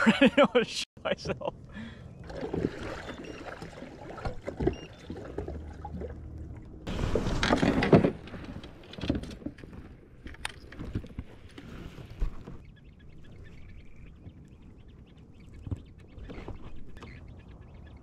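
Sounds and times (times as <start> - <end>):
water splashing against kayak hull: 2.2 - 12.7.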